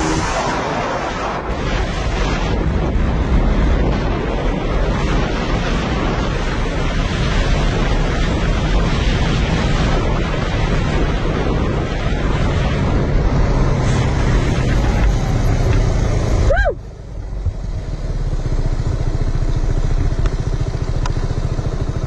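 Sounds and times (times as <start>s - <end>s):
wind noise: 0.0s - 22.0s
scooter engine running: 13.1s - 22.0s.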